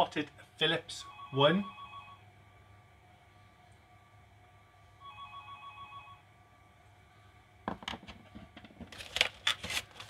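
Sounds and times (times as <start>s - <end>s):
telephone ringing trill: 1.1s - 2.2s, 5.0s - 6.3s.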